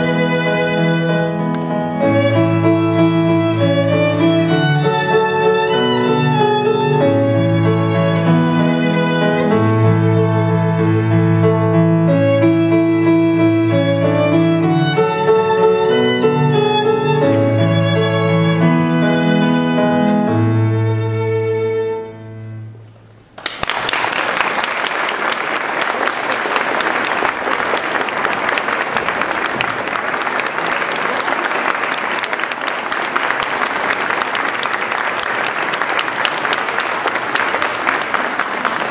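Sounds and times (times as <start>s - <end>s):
violin: 0.0s - 22.8s
audience applause: 23.3s - 38.9s.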